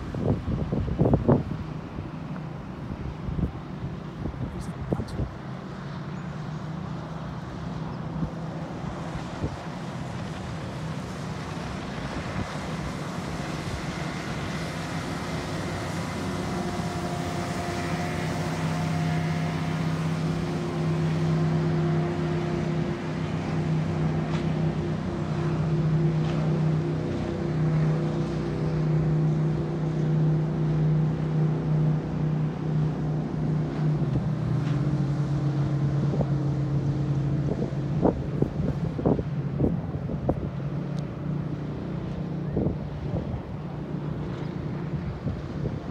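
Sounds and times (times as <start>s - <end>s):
wind noise on microphone: 0.0s - 2.1s, 2.9s - 5.4s, 37.3s - 40.8s, 42.4s - 43.7s, 44.9s - 45.9s
motorboat engines droning: 0.0s - 45.9s.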